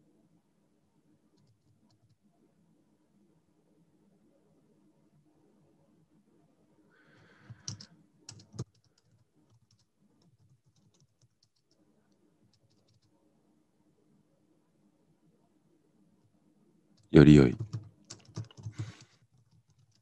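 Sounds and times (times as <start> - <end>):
typing on computer keyboard: 1.3 - 2.2, 7.4 - 13.2, 17.5 - 20.0.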